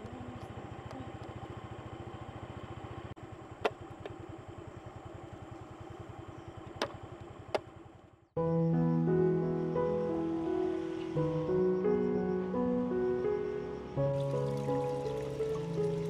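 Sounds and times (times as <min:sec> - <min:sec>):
small motorcycle engine running: 0:00.0 - 0:08.4.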